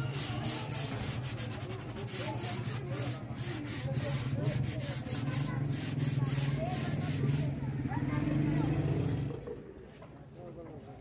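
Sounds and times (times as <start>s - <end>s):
sandpaper rubbing on wood: 0.0s - 7.6s.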